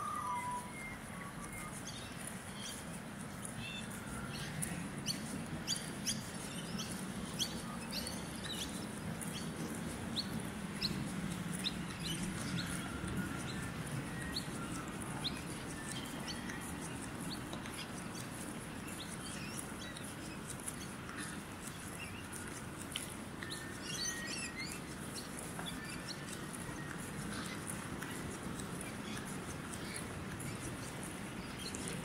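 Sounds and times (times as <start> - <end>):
birds chirping: 0.0 - 32.0.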